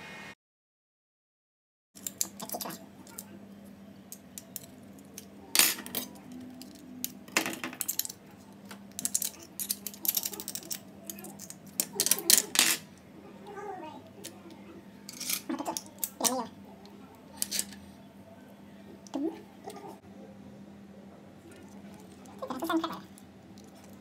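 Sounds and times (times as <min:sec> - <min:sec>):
metal utensil scraping bowl: 0:15.1 - 0:16.4.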